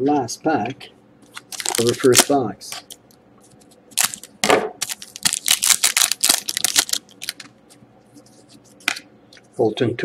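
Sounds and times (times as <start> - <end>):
foil pack crinkling and crackling: 1.4 - 2.9, 3.9 - 7.5.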